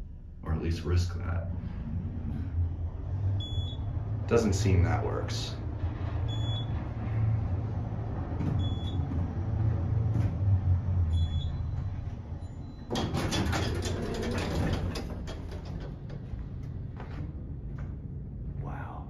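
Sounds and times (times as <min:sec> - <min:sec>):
elevator car humming: 0:00.0 - 0:18.8
elevator doors sliding open: 0:01.5 - 0:17.4.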